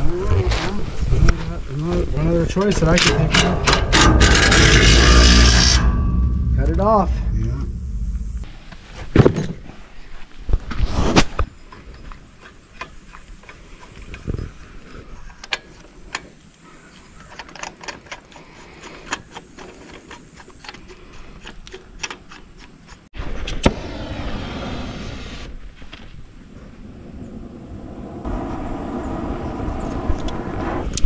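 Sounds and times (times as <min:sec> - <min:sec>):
steady noise with falling tone: 0:03.3 - 0:08.5.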